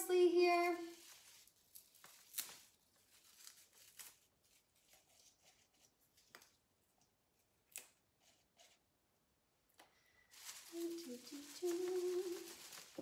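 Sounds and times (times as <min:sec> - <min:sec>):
soft rustling of herbs: 0:00.0 - 0:06.7, 0:10.0 - 0:13.0.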